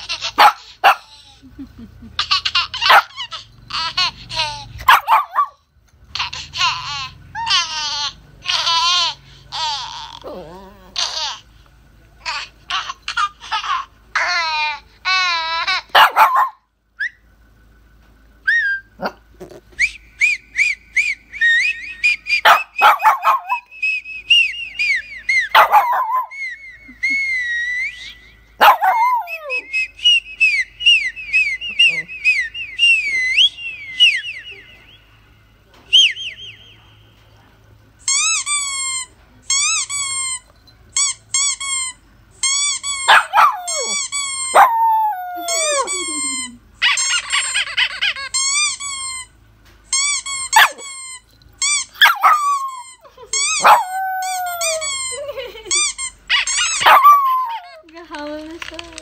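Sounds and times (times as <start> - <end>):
dog yipping: 0.0 - 1.3, 2.3 - 5.6, 12.3 - 17.2, 18.5 - 19.6, 21.7 - 29.8, 38.1 - 49.3, 49.9 - 57.8
small dog whining: 6.6 - 11.4, 18.4 - 34.6, 38.1 - 49.3, 49.9 - 57.8.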